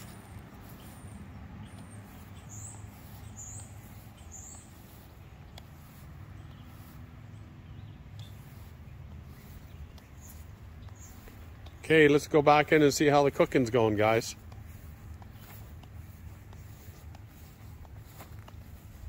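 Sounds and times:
small bird chirping: 0:00.0 - 0:11.8.

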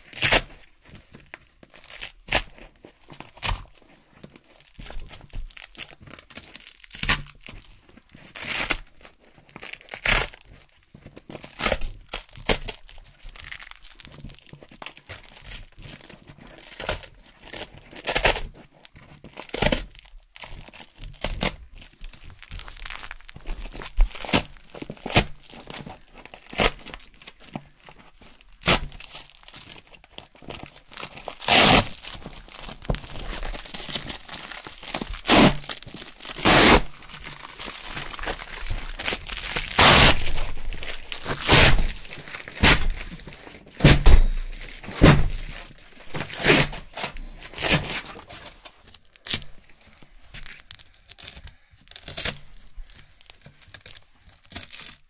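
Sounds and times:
velcro ripping apart: 0:06.6 - 0:07.5, 0:22.4 - 0:27.0, 0:28.6 - 0:29.8, 0:30.6 - 0:48.3, 0:50.4 - 0:53.1, 0:53.8 - 0:55.0.

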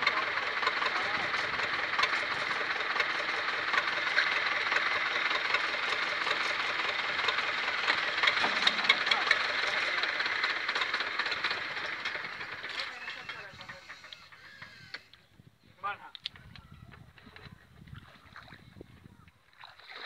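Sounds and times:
diesel tractor engine running: 0:00.0 - 0:15.2.

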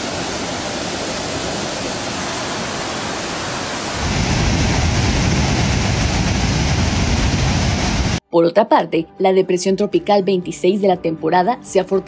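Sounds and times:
floodwater pouring over falls: 0:00.0 - 0:07.1
water rushing down spillway: 0:00.0 - 0:08.2.

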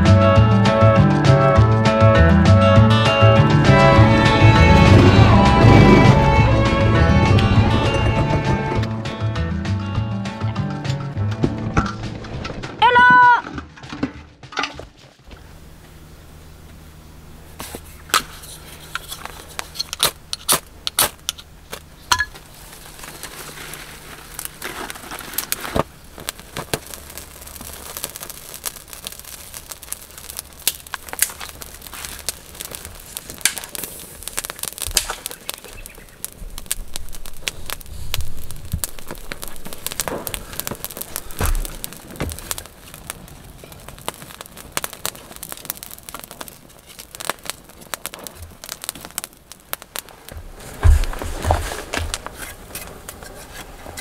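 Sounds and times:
campfire crackling and popping: 0:00.0 - 0:13.4, 0:15.2 - 0:54.0
dull thumps: 0:34.4 - 0:47.5, 0:50.1 - 0:53.3.

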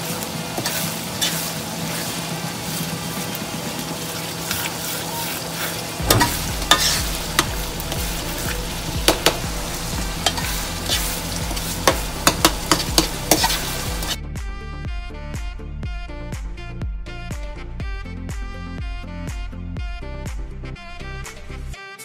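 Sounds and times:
sauce sizzling in frying pan: 0:00.0 - 0:14.2
metal spoon scraping pan: 0:00.6 - 0:02.0, 0:05.7 - 0:14.2.

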